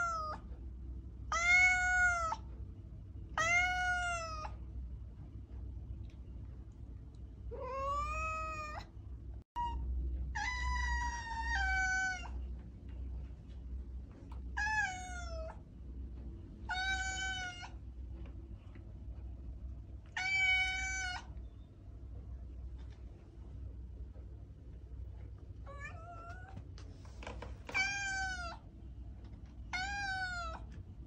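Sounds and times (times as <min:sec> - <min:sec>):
cat meowing: 0:00.0 - 0:00.4, 0:01.3 - 0:02.4, 0:03.4 - 0:04.6, 0:07.5 - 0:08.9, 0:09.6 - 0:12.4, 0:14.5 - 0:15.6, 0:16.7 - 0:17.8, 0:20.1 - 0:21.4, 0:25.6 - 0:26.6, 0:27.7 - 0:28.6, 0:29.7 - 0:30.7
steady low hum: 0:00.0 - 0:31.0.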